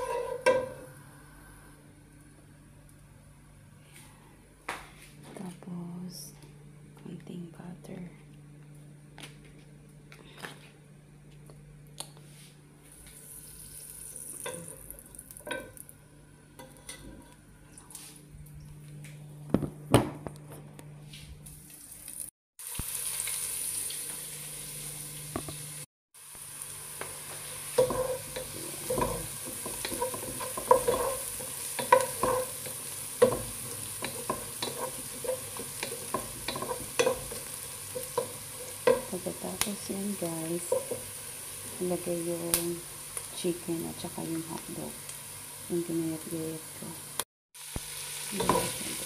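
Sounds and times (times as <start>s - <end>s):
onion and garlic sizzling: 0.0s - 3.0s, 12.9s - 17.6s, 21.4s - 49.0s
low steady hum: 0.0s - 21.6s.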